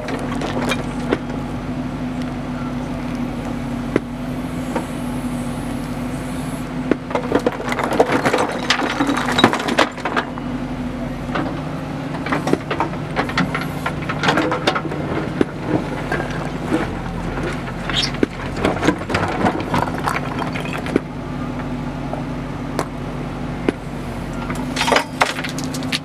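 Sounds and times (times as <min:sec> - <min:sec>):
diesel engine running: 0:00.0 - 0:26.0
stones clattering in bucket: 0:07.2 - 0:10.3, 0:12.3 - 0:21.1, 0:24.5 - 0:26.0.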